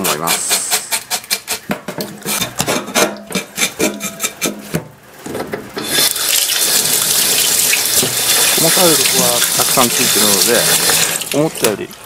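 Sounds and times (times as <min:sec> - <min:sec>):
fish scales being scraped: 0:00.0 - 0:04.5
tap water splashing in metal sink: 0:06.3 - 0:11.9.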